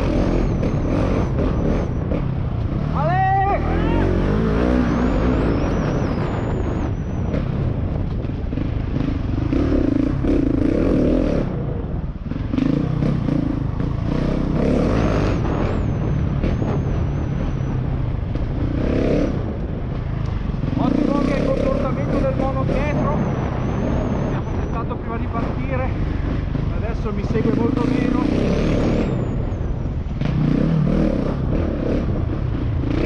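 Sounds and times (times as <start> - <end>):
motorcycle engine revving: 0.0 - 33.0.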